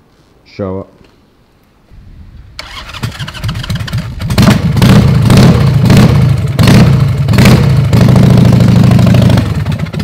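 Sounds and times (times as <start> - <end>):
motorcycle engine revving: 2.6 - 10.0.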